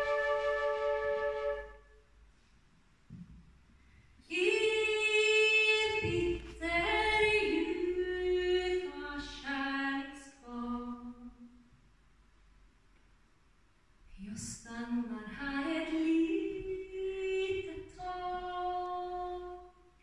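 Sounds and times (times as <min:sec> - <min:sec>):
woman singing unaccompanied: 0:04.3 - 0:11.3, 0:14.2 - 0:19.8.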